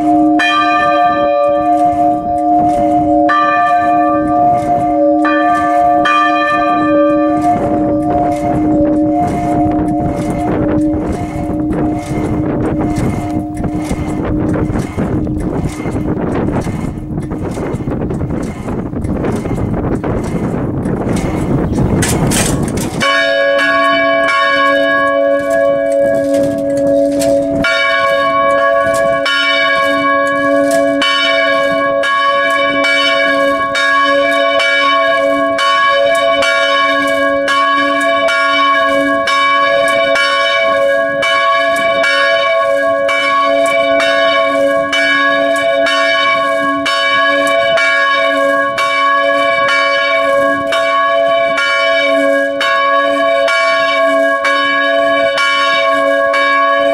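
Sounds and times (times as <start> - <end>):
church bells ringing: 0.0 - 56.9.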